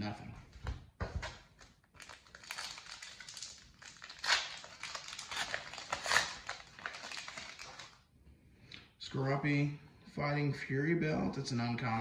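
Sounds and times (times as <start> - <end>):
foil wrapper crinkling and tearing: 1.6 - 8.0.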